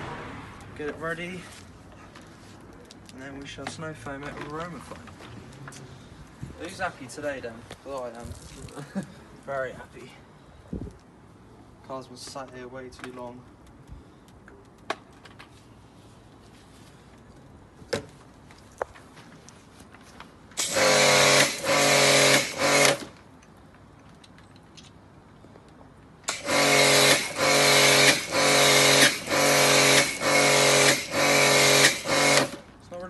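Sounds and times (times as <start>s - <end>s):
pressure washer running: 20.6s - 23.1s, 26.3s - 32.6s.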